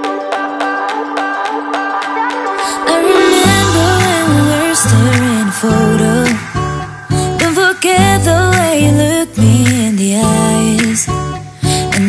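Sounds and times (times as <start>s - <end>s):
instrumental pop music: 0.0s - 12.0s.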